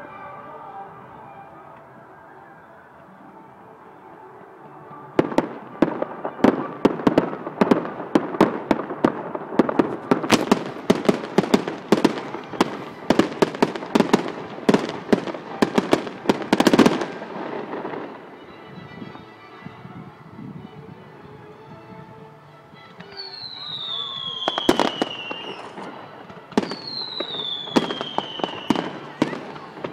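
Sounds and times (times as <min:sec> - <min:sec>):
fireworks bangs: 0:05.2 - 0:19.2, 0:23.0 - 0:29.9.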